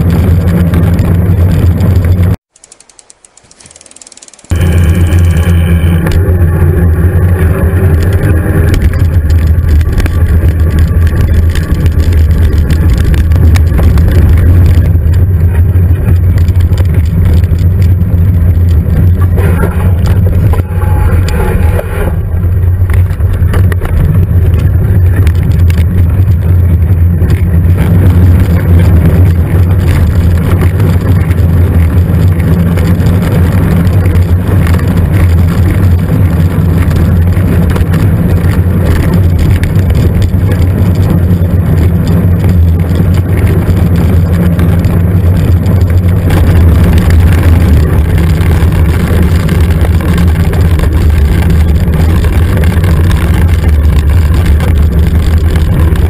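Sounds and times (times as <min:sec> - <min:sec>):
tyres on dirt track: 0:00.0 - 0:56.0
wind buffeting microphone: 0:04.4 - 0:56.0.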